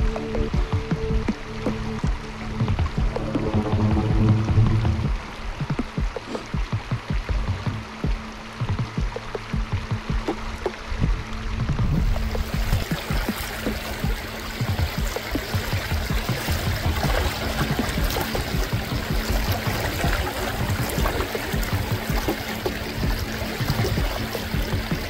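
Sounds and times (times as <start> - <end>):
background music low note: 0.0 - 25.0
stream trickling over rocks: 0.0 - 25.0.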